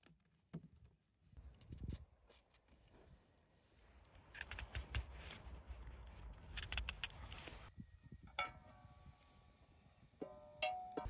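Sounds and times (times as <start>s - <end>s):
knife scraping onion skin: 4.3s - 5.5s, 6.4s - 7.6s
metal clink: 10.2s - 11.0s.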